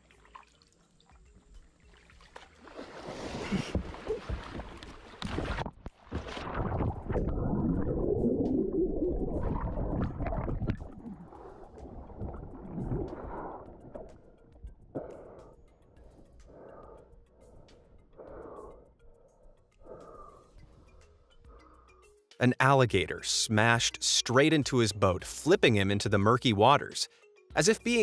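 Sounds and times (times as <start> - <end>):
kayak paddle strokes: 0.0 - 7.2
heavy water splashing: 2.2 - 8.5
muffled underwater thrashing: 2.6 - 15.2.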